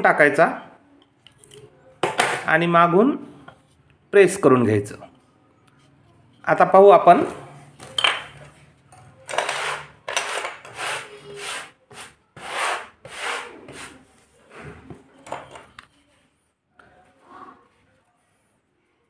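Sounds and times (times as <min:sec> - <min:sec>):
hand sweeping powder on board: 0:10.7 - 0:14.0.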